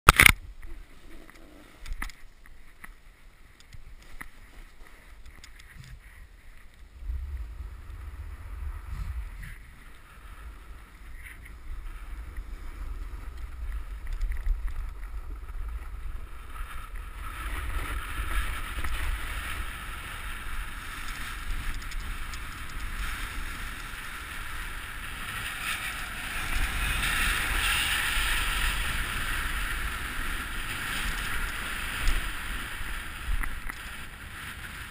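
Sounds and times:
snowboard sliding over snow: 0:00.7 - 0:34.9
wind buffeting microphone: 0:05.8 - 0:34.9.

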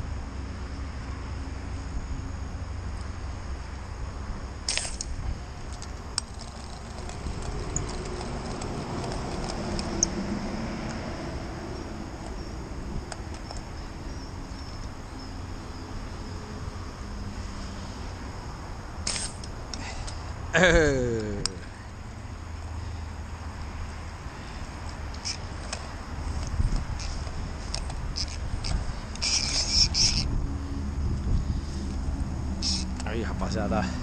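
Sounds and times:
faint insect tones: 0:00.0 - 0:34.0
sharp handling clicks: 0:04.7 - 0:10.2
vehicle passing over bridge: 0:07.1 - 0:13.0
steady low rumble: 0:21.5 - 0:34.0.

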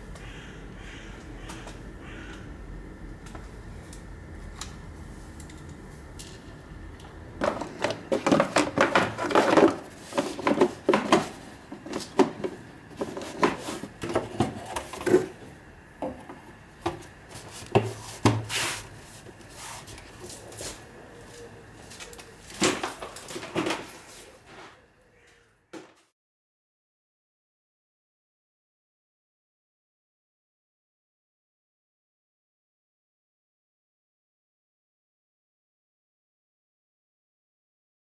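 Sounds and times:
plastic parts knocking and clicking: 0:07.4 - 0:15.3.

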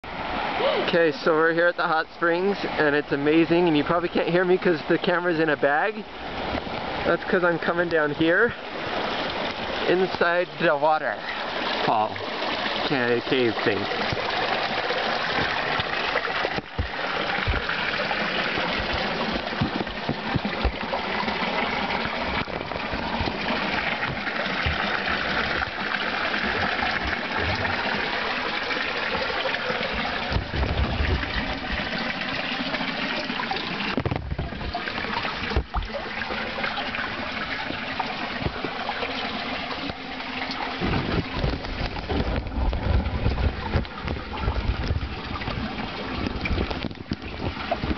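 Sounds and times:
waterfall splashing into pool: 0:05.2 - 0:47.9
low bumps: 0:13.8 - 0:38.9, 0:39.7 - 0:47.9.

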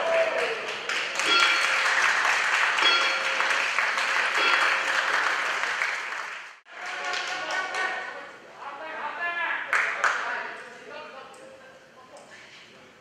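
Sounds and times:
crowd applauding and cheering: 0:00.0 - 0:07.9.

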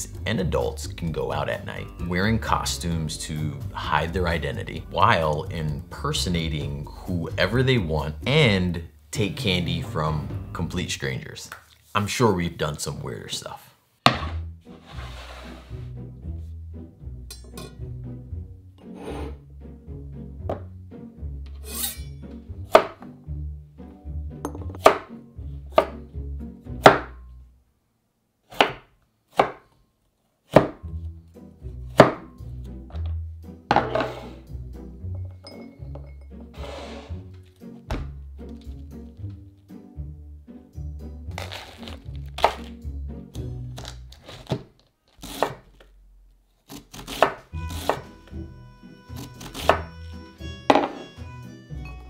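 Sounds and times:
background music: 0:00.0 - 0:27.6, 0:30.4 - 0:44.6, 0:45.2 - 0:52.0
knife cutting on wooden board: 0:41.4 - 0:42.7, 0:45.2 - 0:45.7, 0:46.7 - 0:48.2.

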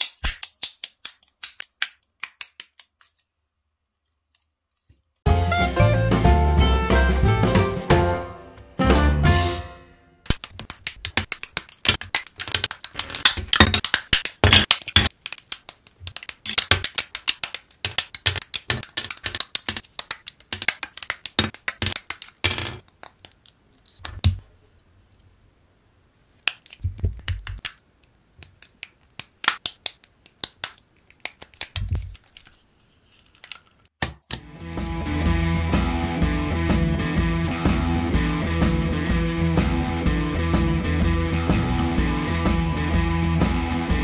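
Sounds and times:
plastic parts clicking and rattling: 0:10.3 - 0:24.4, 0:30.3 - 0:33.9.

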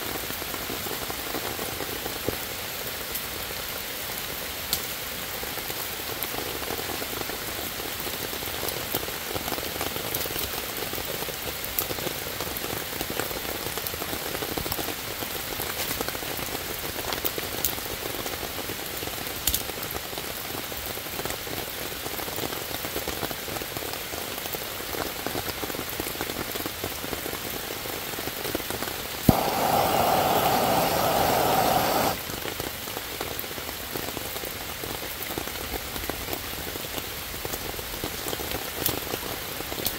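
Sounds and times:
rain on leaves: 0:00.0 - 0:39.9
loud steady hiss: 0:29.0 - 0:32.5.

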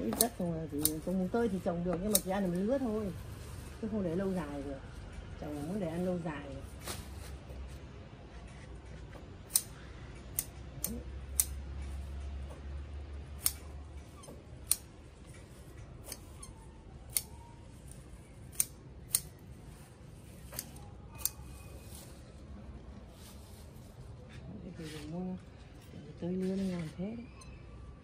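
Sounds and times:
scissors snipping stems: 0:00.0 - 0:03.1, 0:09.5 - 0:12.2, 0:13.3 - 0:22.0.

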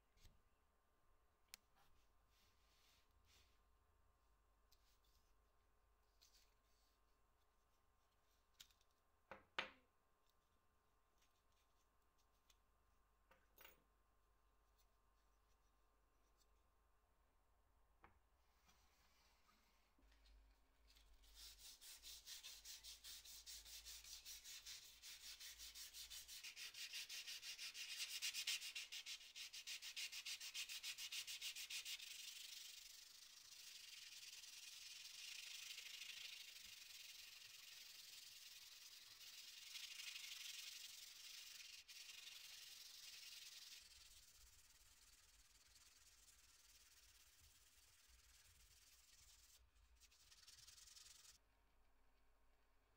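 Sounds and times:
sandpaper rubbing on steel blade: 0:21.2 - 0:51.4.

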